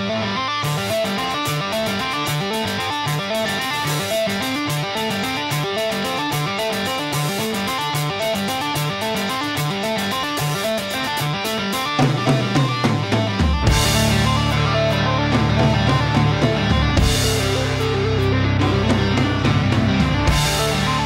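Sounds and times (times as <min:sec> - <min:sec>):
steady ticking beat: 0:12.2 - 0:21.0
fast repeating melody: 0:13.7 - 0:21.0.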